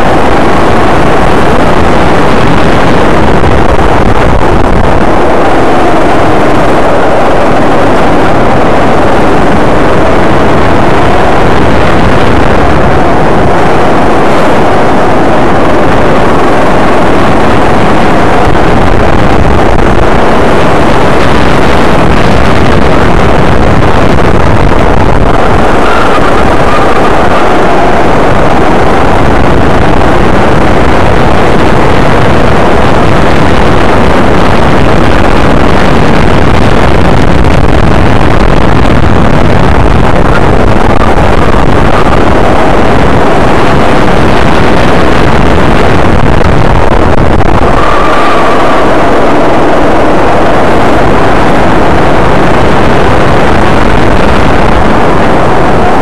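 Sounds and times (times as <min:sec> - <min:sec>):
kart engine running hard: 0:00.0 - 0:32.8
air rushing over microphone: 0:00.0 - 0:56.0.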